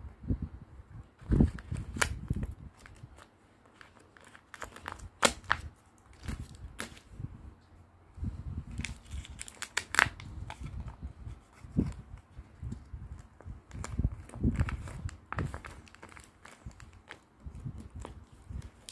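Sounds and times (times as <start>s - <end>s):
laminated paper crinkling: 1.2s - 7.2s, 8.6s - 18.9s.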